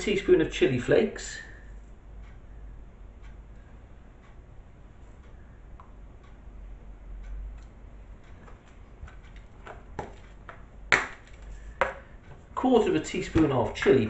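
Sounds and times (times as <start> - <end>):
low steady hum: 0.0 - 14.0
teaspoon clicking against plastic tubs: 13.0 - 14.0.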